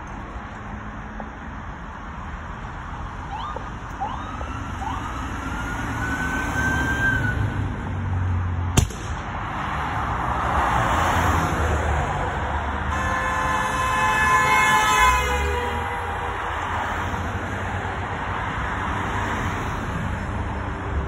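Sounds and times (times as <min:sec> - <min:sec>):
highway traffic rumble: 0:00.0 - 0:21.0
siren whooping and wailing: 0:03.3 - 0:07.6
sharp pop: 0:08.8 - 0:09.3.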